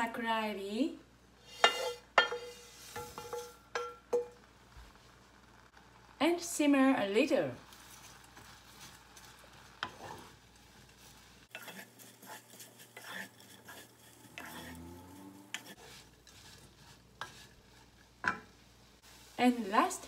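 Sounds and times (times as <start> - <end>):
spatula scraping a saucepan: 1.4 - 3.6, 7.7 - 19.4.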